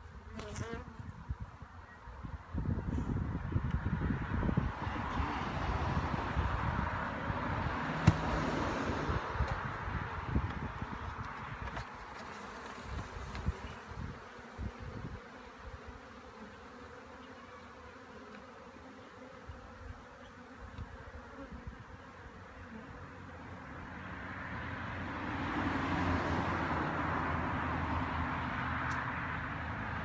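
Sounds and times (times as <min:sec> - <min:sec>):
bees buzzing: 0:11.4 - 0:24.3.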